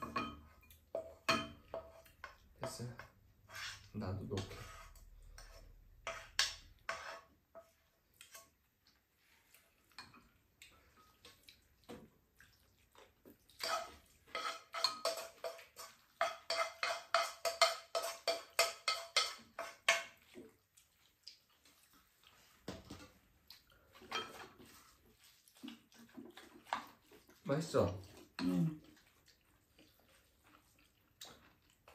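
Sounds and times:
chopsticks scraping a frying pan: 0.0s - 8.6s, 13.6s - 20.6s, 23.9s - 31.9s.

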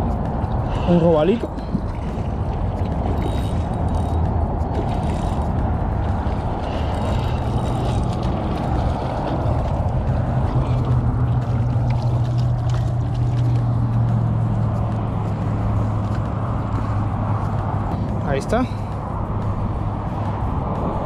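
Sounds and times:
wind noise: 0.0s - 21.0s
fishing reel cranking: 3.0s - 5.6s, 6.2s - 8.8s.

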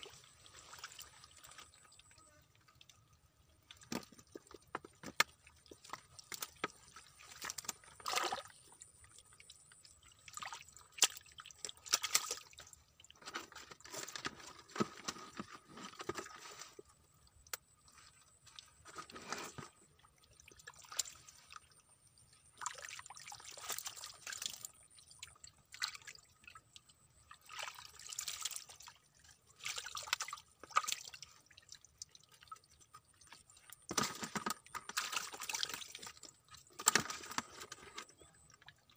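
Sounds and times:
hands splashing in muddy water: 3.8s - 8.7s.

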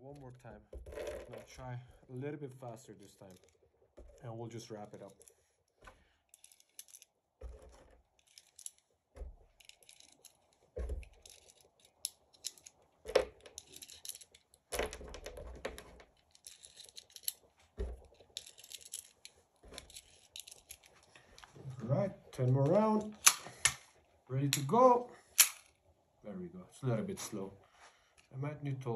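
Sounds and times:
cartridges clicking into magazine: 23.0s - 23.8s, 25.4s - 25.8s.

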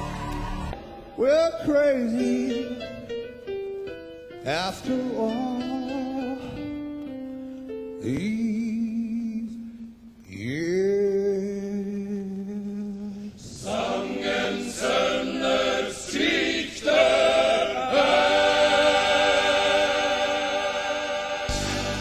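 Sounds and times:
men's choir singing: 13.5s - 22.0s.

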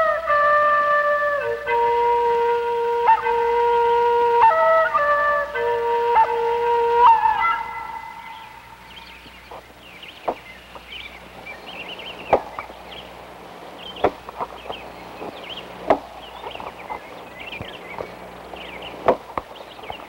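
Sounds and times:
axe chopping wood: 12.3s - 12.7s, 14.0s - 14.5s, 15.8s - 16.8s, 19.0s - 19.5s.

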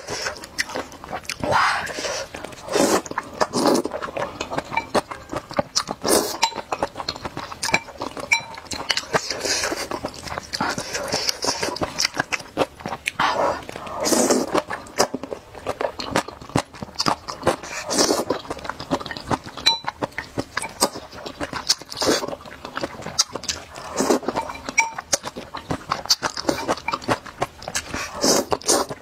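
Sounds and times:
person slurping noodles: 0.0s - 5.3s, 6.0s - 6.4s, 9.0s - 12.2s, 13.2s - 15.2s, 17.3s - 18.4s, 21.9s - 22.4s, 23.6s - 24.5s, 27.8s - 29.0s
chewing: 0.0s - 29.0s.

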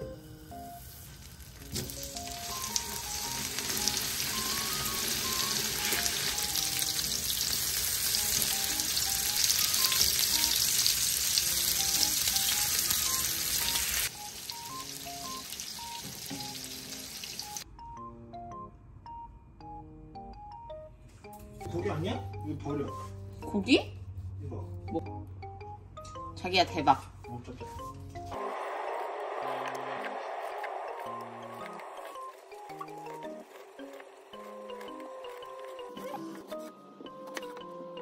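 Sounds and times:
steaks sizzling in frying pan: 0.8s - 17.6s.

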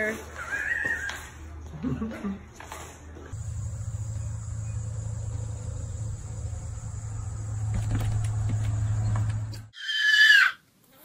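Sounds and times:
low even hum: 3.3s - 9.7s.

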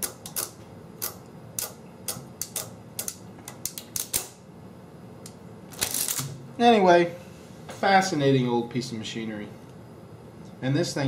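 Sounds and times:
adding machine clicking: 0.0s - 4.4s.

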